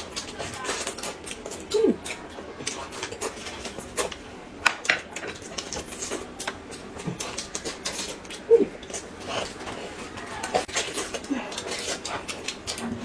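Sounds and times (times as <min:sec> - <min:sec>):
chewing and biting smacks: 0:05.1 - 0:13.0.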